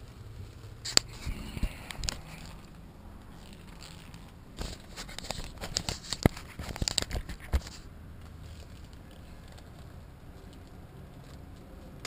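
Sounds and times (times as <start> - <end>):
plastic raincoat crinkling: 0.4 - 9.8.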